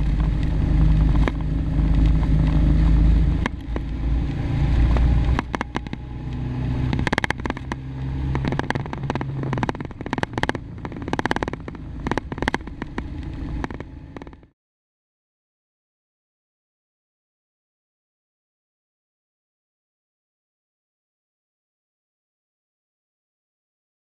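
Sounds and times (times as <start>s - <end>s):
motorcycle engine and road noise: 0.0s - 14.6s
sidecar body rattling and knocking: 6.9s - 14.4s.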